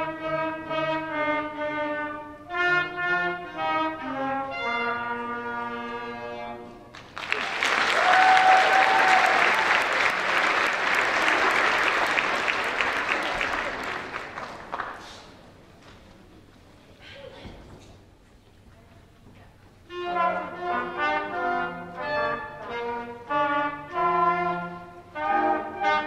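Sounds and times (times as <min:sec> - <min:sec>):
wind ensemble playing: 0:00.0 - 0:06.9, 0:19.9 - 0:26.0
audience applause: 0:06.9 - 0:15.4.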